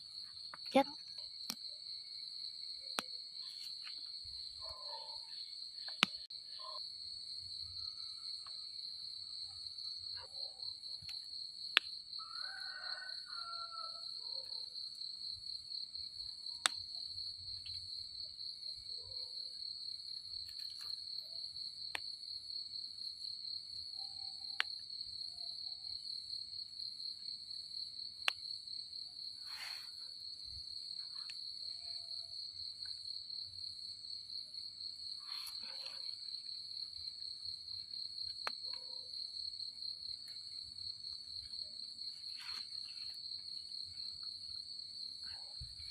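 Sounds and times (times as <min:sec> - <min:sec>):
night insects trilling: 0:00.0 - 0:45.9
sharp clicks of mushrooms snapping: 0:05.8 - 0:06.2.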